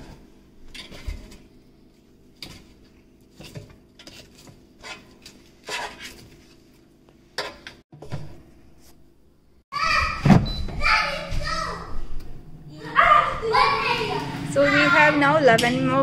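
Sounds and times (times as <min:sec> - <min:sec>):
metal fork scraping basket: 0:03.4 - 0:06.6.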